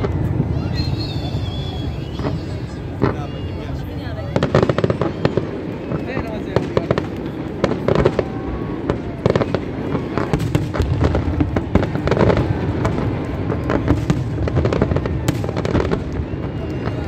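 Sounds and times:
fireworks bangs and crackles: 0:00.0 - 0:17.0.

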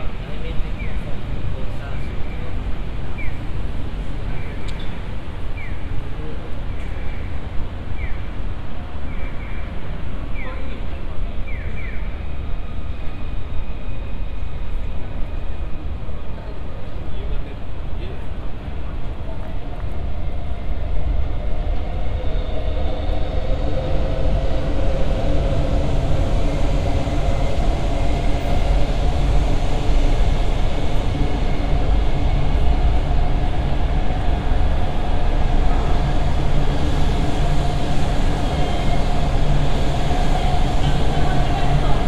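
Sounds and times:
train rumbling past: 0:00.0 - 0:42.0.

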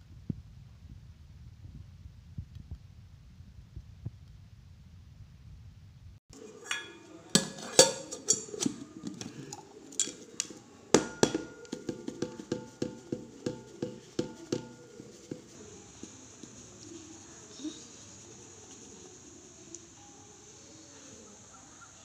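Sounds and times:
steel container rattling: 0:06.4 - 0:10.4, 0:11.0 - 0:15.5.

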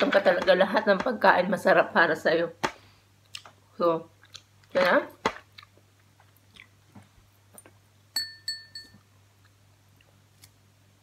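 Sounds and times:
ringing clinks: 0:08.2 - 0:09.0.

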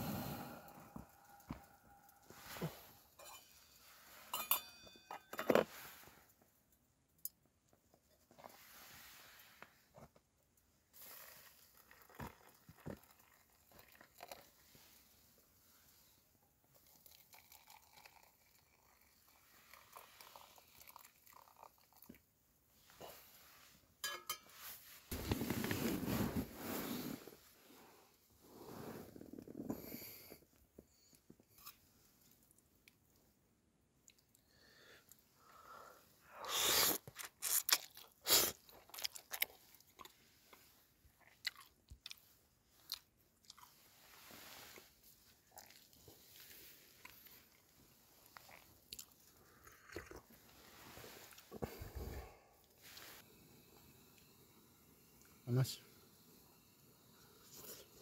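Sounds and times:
person chewing noodles: 0:36.4 - 0:40.2, 0:41.2 - 0:42.2, 0:42.8 - 0:43.8, 0:45.4 - 0:50.6.

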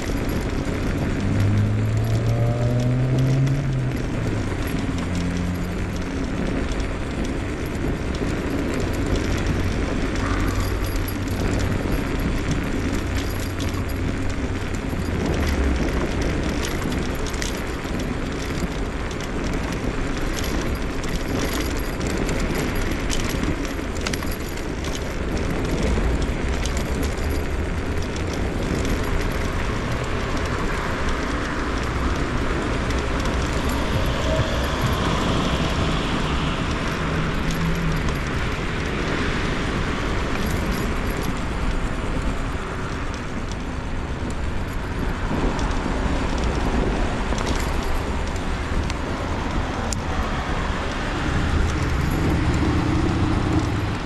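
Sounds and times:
small clicks and rattles: 0:00.0 - 0:54.0
wheels rushing on pavement: 0:00.0 - 0:54.0
low hum: 0:31.2 - 0:39.0.

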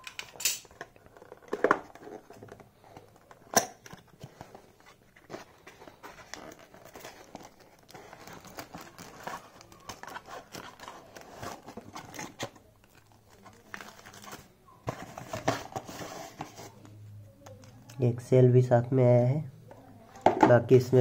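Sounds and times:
cardboard rustling and scraping: 0:01.1 - 0:17.0
plastic packaging crinkling: 0:04.0 - 0:16.0.

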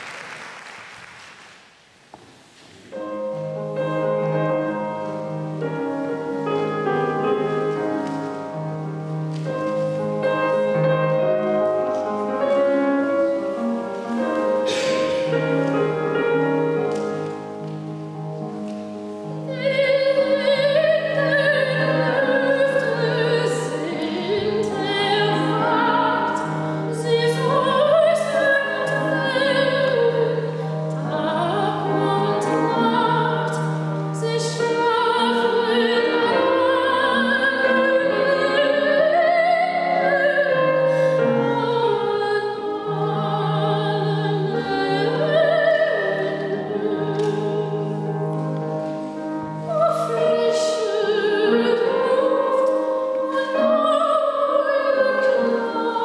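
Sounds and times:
grand piano: 0:00.0 - 0:56.0
woman singing operatically: 0:19.5 - 0:48.0, 0:49.7 - 0:56.0.

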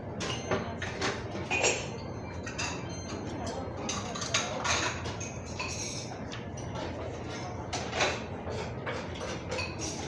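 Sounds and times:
steady background noise: 0:00.0 - 0:10.0
spoon and fork clinking on bowl: 0:00.2 - 0:06.7, 0:09.0 - 0:10.0.

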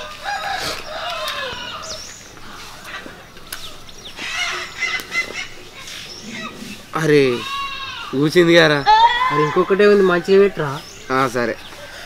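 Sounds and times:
rooster crowing: 0:00.0 - 0:02.0
chickens clucking: 0:00.0 - 0:08.0
small birds chirping: 0:00.0 - 0:12.0.

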